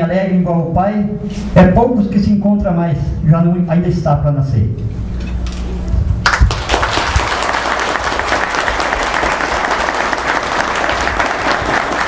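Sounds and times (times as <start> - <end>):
audience clapping: 6.2 - 12.0.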